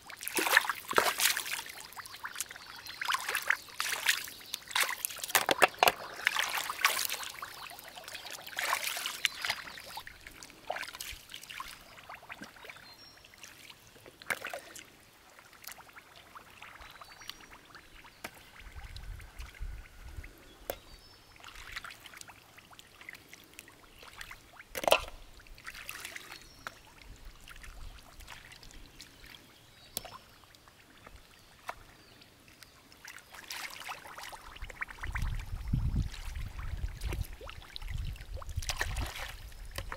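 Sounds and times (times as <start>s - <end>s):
hands splashing in shallow water: 0.2s - 10.1s, 36.0s - 39.9s.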